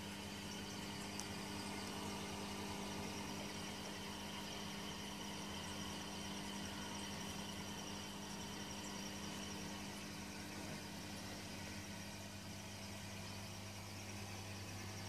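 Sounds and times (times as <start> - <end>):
aquarium equipment humming: 0.0 - 15.0.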